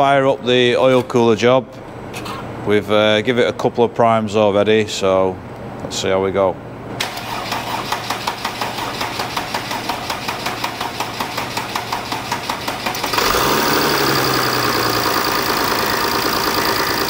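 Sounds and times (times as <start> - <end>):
diesel engine cranking: 7.0 - 17.0
diesel engine revving and idling: 13.1 - 17.0.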